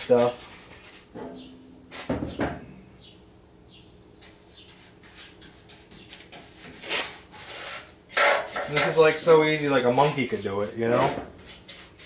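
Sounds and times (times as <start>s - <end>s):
paintbrush scrubbing on metal: 4.2s - 12.0s.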